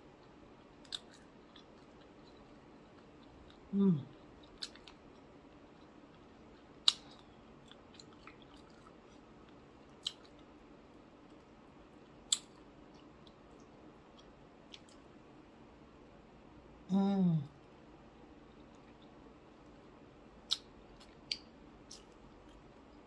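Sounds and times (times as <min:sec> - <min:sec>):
person humming mm: 0:03.7 - 0:04.1, 0:16.9 - 0:17.6.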